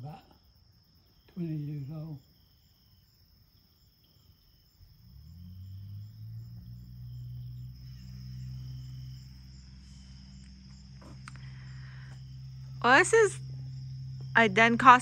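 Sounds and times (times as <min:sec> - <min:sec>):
crickets chirring: 0:00.0 - 0:15.0
low mechanical drone: 0:05.1 - 0:15.0.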